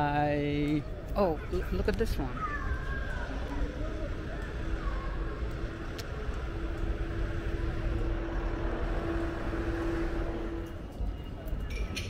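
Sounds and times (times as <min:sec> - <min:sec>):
street traffic rumble: 0:00.0 - 0:12.0
vehicle engine humming: 0:02.8 - 0:11.6.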